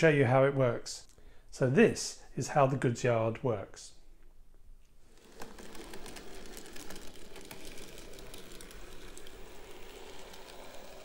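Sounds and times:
model train rattling on track: 5.2s - 11.0s.

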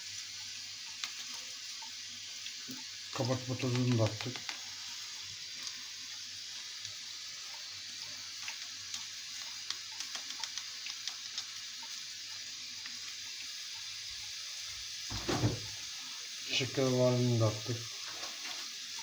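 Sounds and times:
steady hiss: 0.0s - 19.0s
light ticks and taps: 3.6s - 4.6s, 8.4s - 12.0s.

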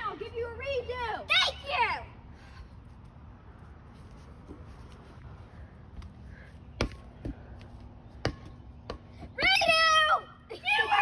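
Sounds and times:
ball smacking on concrete: 6.8s - 7.6s, 8.2s - 9.2s.

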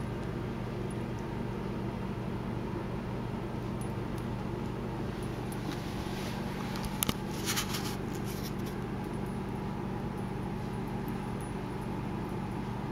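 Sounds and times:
low hum of kitchen: 0.0s - 12.9s
light scratchy sounds: 5.6s - 8.9s.

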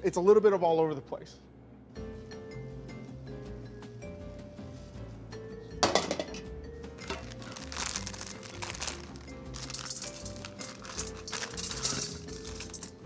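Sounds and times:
background music: 1.6s - 13.0s
plastic packet crinkling: 7.0s - 13.0s.

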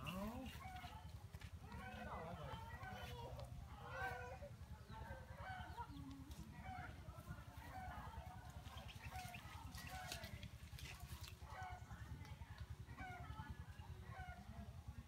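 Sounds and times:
chickens clucking: 0.0s - 11.9s.

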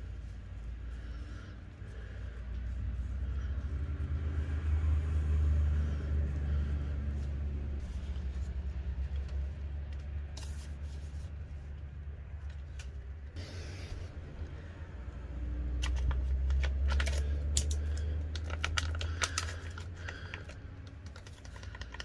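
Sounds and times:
food and paper rustling: 0.0s - 14.6s, 15.6s - 22.0s
low rumble: 0.0s - 19.4s.

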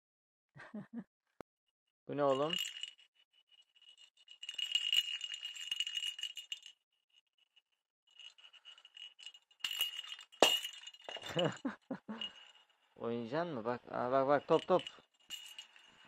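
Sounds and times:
bell in toy ball jingling: 2.2s - 12.9s, 14.1s - 16.0s.

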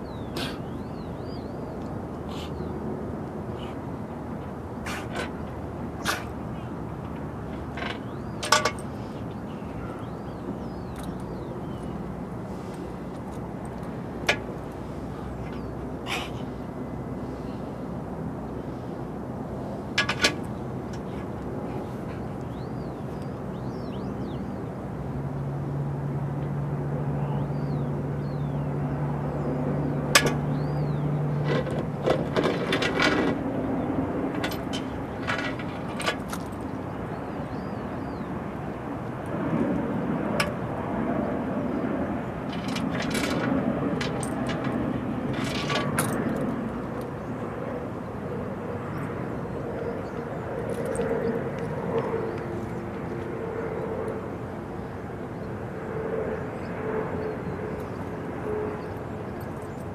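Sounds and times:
low engine hum: 0.0s - 59.9s
sharp clicks and knocks: 42.5s - 46.5s.

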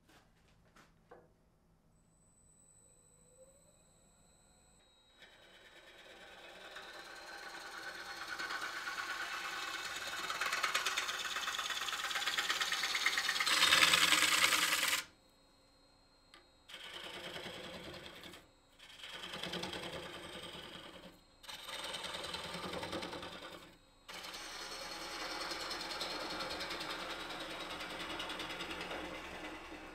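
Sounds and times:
gouge cutting wood on a lathe: 5.2s - 15.1s, 16.7s - 29.9s.

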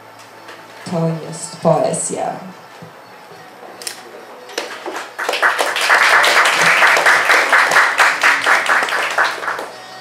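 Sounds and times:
audience applauding: 4.6s - 9.8s.

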